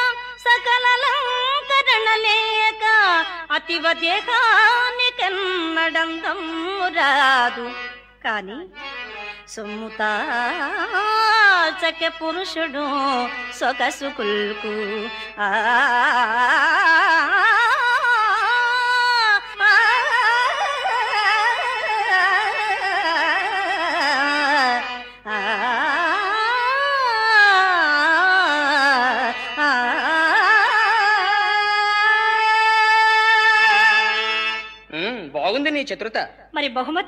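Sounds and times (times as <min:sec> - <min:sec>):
person singing wordless melody: 0:00.0 - 0:35.5.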